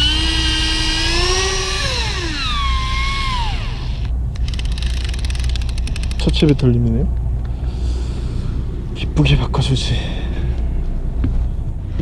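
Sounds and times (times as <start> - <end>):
fishing reel motor whining: 0.0 - 6.2.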